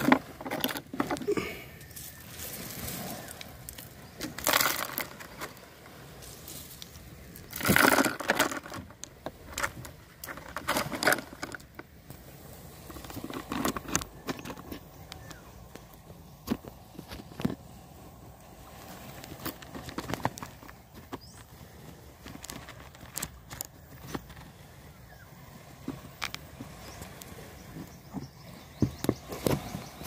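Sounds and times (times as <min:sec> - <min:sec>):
net crunching and rustling: 0:00.0 - 0:05.6, 0:06.4 - 0:11.7
pebbles shifting underfoot: 0:00.0 - 0:24.6.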